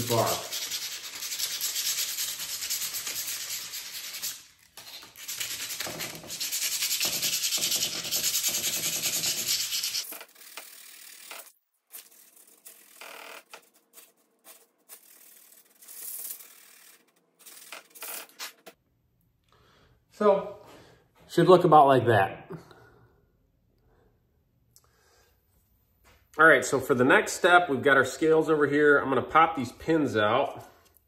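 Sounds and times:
sandpaper rubbing on metal: 0.0 - 10.6, 12.0 - 18.7.

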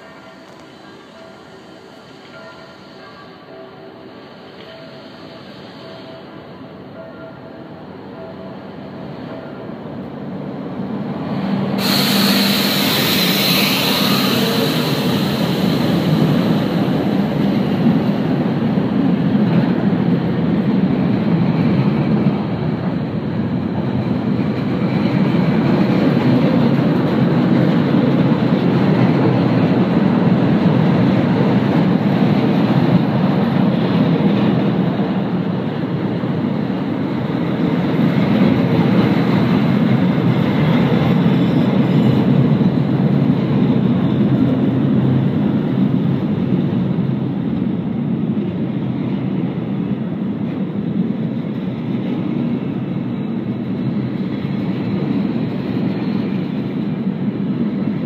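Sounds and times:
train wheels rumbling on rails: 0.0 - 58.0
loud hiss: 11.7 - 17.4.

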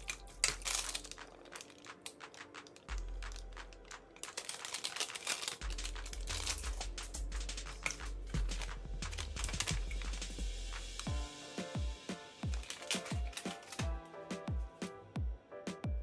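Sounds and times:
plastic packet crinkling: 0.0 - 10.1, 12.4 - 13.9
background music with bass: 5.6 - 16.0.

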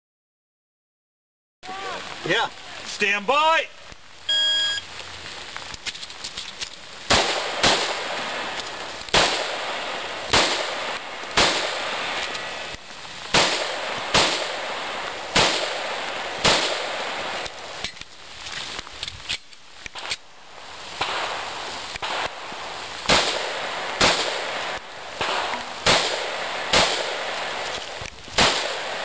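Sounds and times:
shot timer beep: 4.3 - 4.8
pistol shots with echo: 25.2 - 27.3, 28.4 - 29.0.

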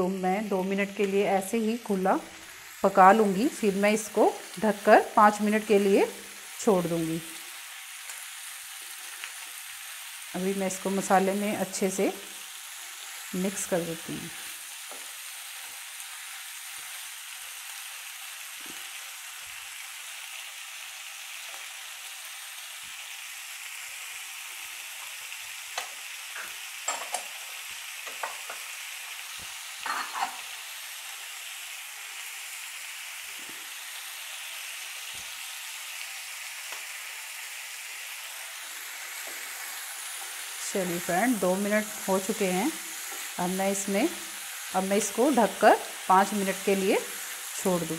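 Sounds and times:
vegetables sizzling in oil: 0.0 - 47.9.

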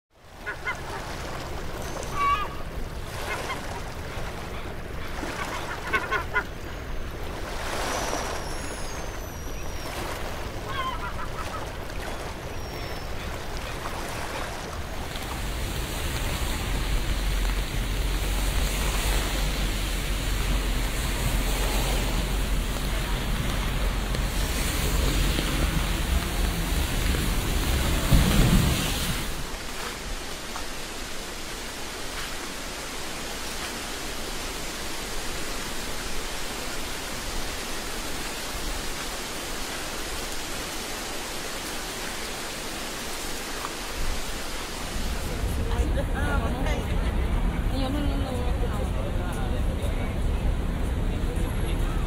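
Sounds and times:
steady outdoor noise: 0.1 - 52.0
bird calls: 7.8 - 14.5.

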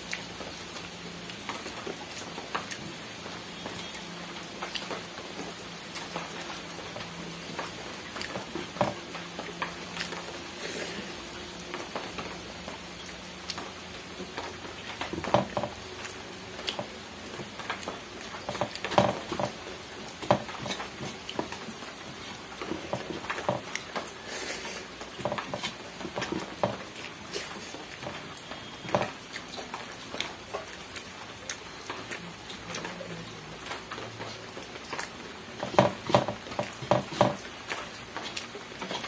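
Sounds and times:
person chewing and smacking: 0.0 - 3.0, 3.6 - 11.1, 12.0 - 32.9, 33.9 - 39.0
faint steady hiss: 0.0 - 39.0.

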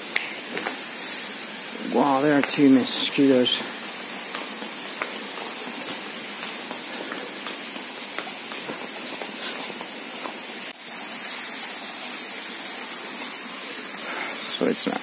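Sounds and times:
water spraying from a hose: 0.0 - 15.0
footsteps on stone steps: 3.8 - 10.7.

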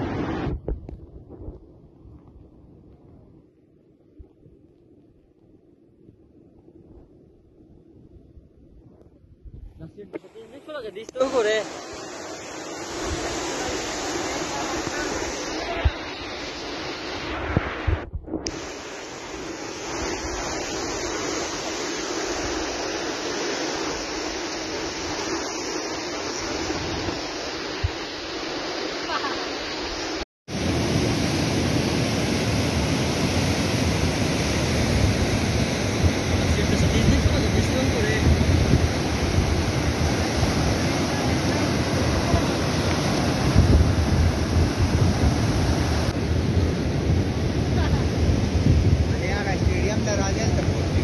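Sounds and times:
wind rumbling on microphone: 0.0 - 51.0
river torrent roaring: 10.2 - 17.8, 28.6 - 51.0
floodwater rushing: 10.2 - 51.0.

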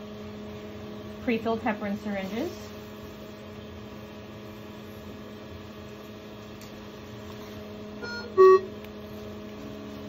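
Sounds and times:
medical equipment humming: 0.0 - 10.0
electronic beep: 8.0 - 8.7.

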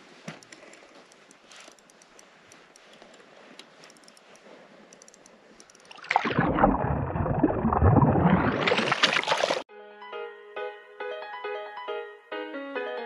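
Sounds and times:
fishing reel ticking: 0.4 - 6.0.

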